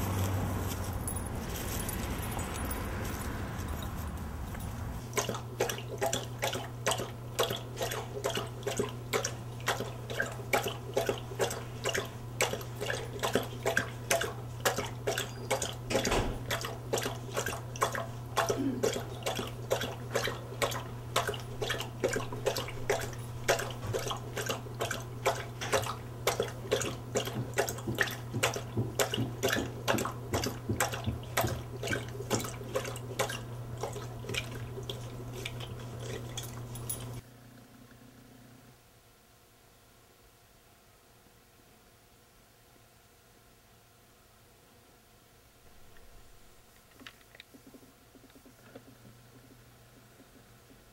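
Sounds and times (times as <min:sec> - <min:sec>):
dog lapping water: 0:02.3 - 0:37.2.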